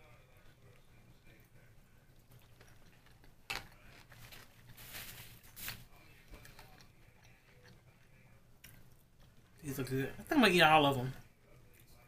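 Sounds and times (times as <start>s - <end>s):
chewing and mouth clicks: 2.2s - 4.7s, 6.3s - 9.6s.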